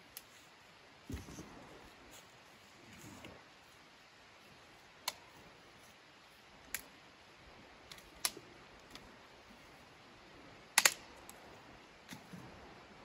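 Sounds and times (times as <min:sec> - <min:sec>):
dry sticks snapping: 0:05.0 - 0:05.3, 0:07.9 - 0:09.1, 0:10.8 - 0:11.4.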